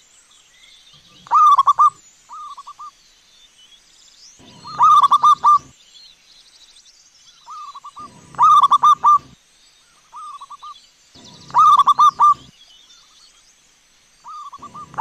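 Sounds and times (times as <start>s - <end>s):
doves cooing: 1.1s - 2.6s, 4.4s - 5.7s, 7.5s - 9.4s, 11.2s - 12.5s, 14.3s - 15.0s.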